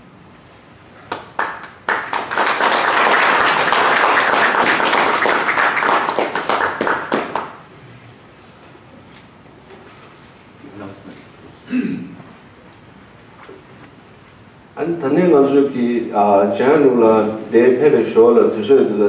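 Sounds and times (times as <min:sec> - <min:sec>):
audience applauding: 0:01.1 - 0:07.6.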